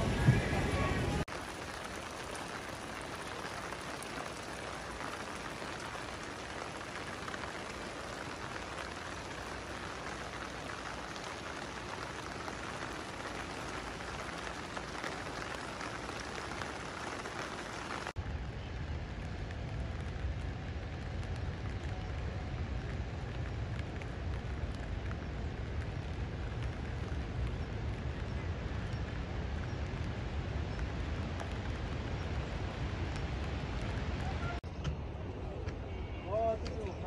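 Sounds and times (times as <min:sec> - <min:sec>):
steady rain falling: 0:00.0 - 0:37.0.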